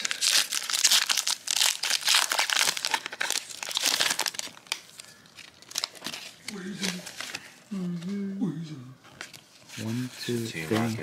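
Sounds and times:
foil wrapper tearing and crinkling: 0.0s - 7.4s.

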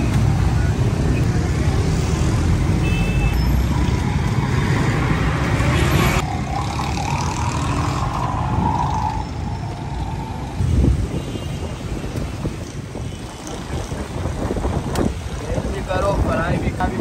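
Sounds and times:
traffic rumble: 0.0s - 17.0s.

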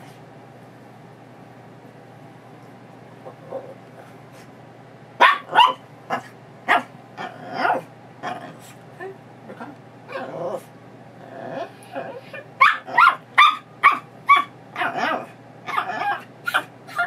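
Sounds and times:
dog barking: 5.2s - 6.9s, 12.6s - 17.0s
dog whining: 9.0s - 10.7s, 11.3s - 17.0s.

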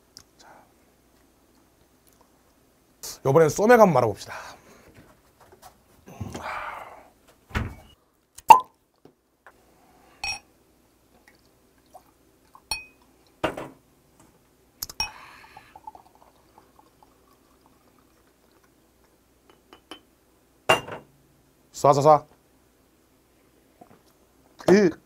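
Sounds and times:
glass bottle clinking glass: 10.2s - 10.4s, 12.7s - 13.0s, 20.7s - 21.0s
beer pouring into glass: 14.9s - 18.8s.

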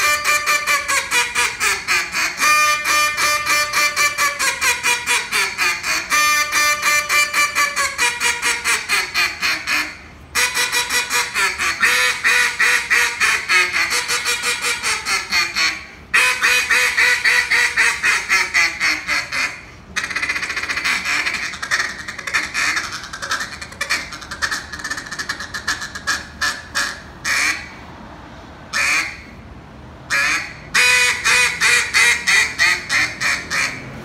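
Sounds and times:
duck call quacking: 0.0s - 27.8s, 28.7s - 29.4s, 30.1s - 34.0s.

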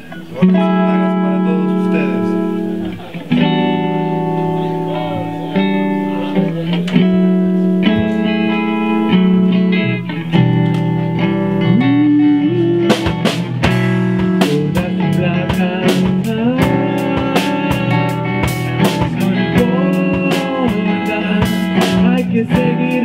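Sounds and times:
bass guitar: 0.0s - 23.0s
electric guitar chords: 0.0s - 23.0s
drums and cymbals: 10.3s - 23.0s.

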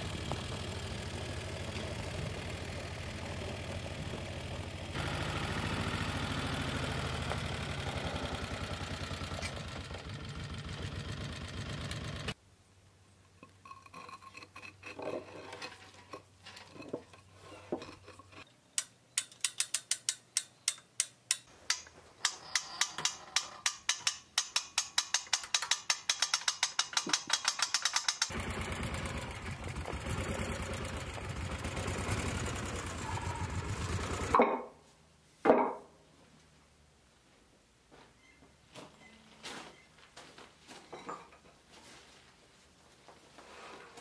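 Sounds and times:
chain hoist ratchet clicking: 18.8s - 28.4s.

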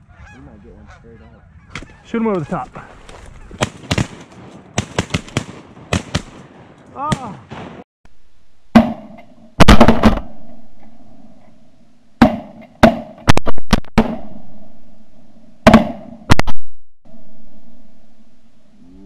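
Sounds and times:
shotgun blasts: 3.6s - 6.5s, 8.7s - 10.6s, 15.6s - 16.6s.

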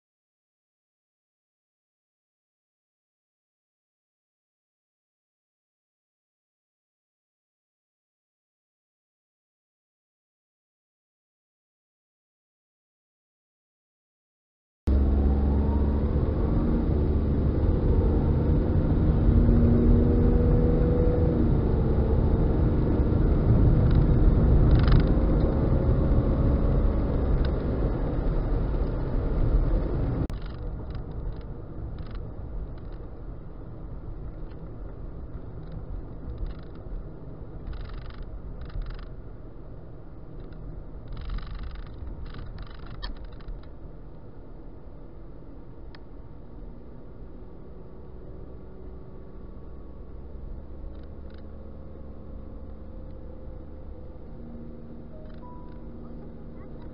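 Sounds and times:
car engine and road rumble: 14.9s - 56.9s.

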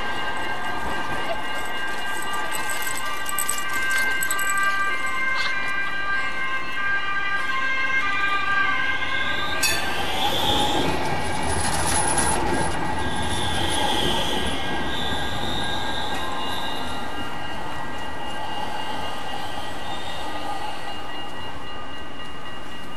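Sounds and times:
tram wheels rumbling on rails: 0.0s - 6.8s, 9.2s - 22.9s
wheels squealing: 9.5s - 17.0s.

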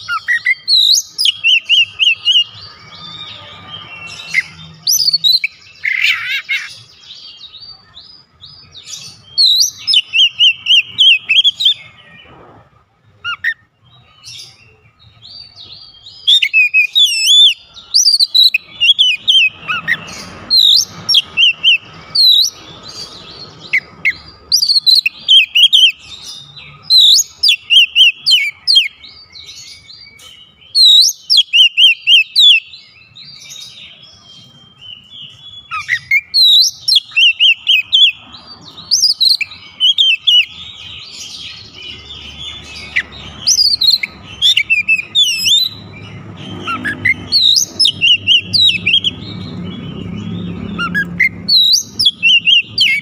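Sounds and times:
bird singing whistles and chirps: 0.0s - 12.4s, 13.2s - 53.0s.

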